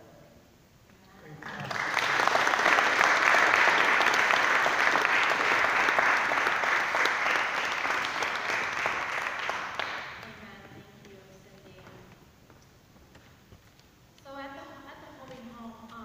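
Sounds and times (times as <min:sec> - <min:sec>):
congregation applauding: 0:01.4 - 0:10.4.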